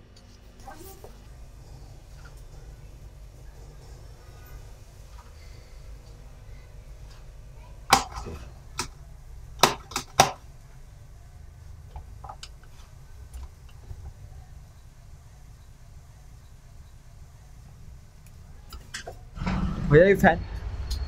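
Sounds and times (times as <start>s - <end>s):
table fan clicks and knocks: 7.9s - 9.0s, 9.6s - 10.4s.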